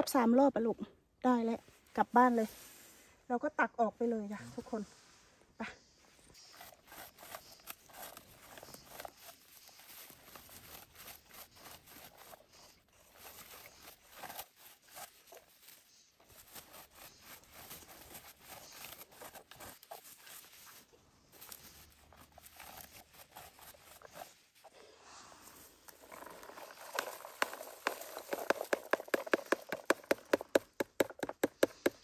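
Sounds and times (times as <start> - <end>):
berry scoop scraping through bushes: 6.2 - 31.4.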